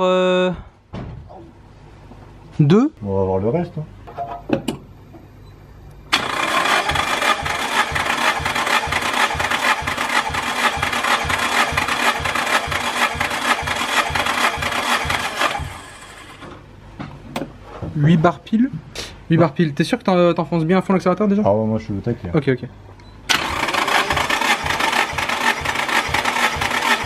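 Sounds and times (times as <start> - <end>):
engine cranking without firing: 6.1 - 16.6, 23.3 - 27.0.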